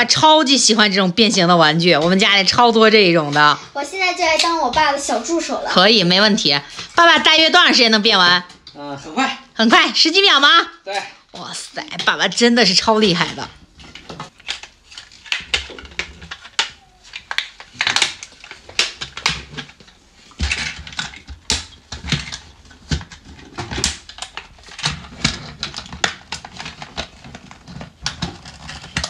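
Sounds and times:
plastic toy parts clicking: 14.3 - 19.7.

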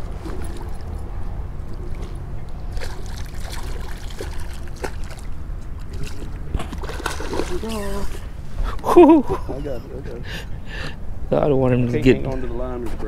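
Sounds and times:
water splashing from thrashing fish: 1.8 - 8.1.

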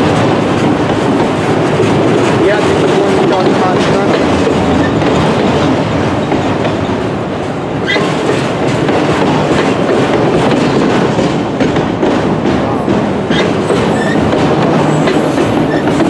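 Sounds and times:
freight train rolling past: 0.0 - 16.0
wheels clacking over rail joints: 0.0 - 16.0
high wheel squeaks: 13.3 - 16.0.

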